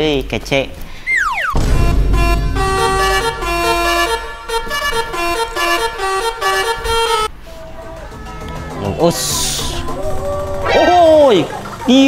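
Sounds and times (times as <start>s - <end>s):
low rumble: 1.6s - 5.2s
multi-tone musical horn: 1.6s - 7.3s.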